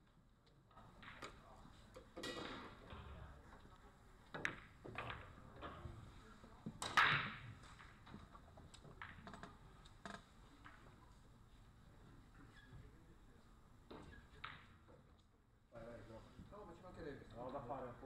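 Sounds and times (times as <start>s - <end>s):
pool balls clicking and knocking: 0.4s - 12.6s, 13.7s - 15.3s.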